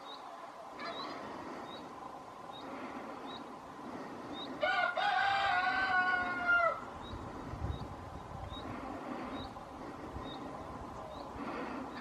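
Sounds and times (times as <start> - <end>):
rooster crowing: 4.6 - 6.9.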